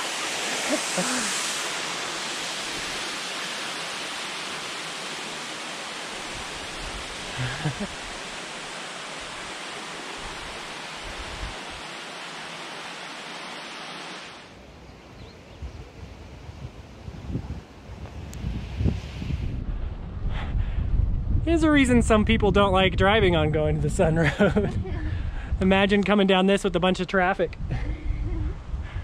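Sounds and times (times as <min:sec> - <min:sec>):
waterfall rushing: 0:00.0 - 0:14.6.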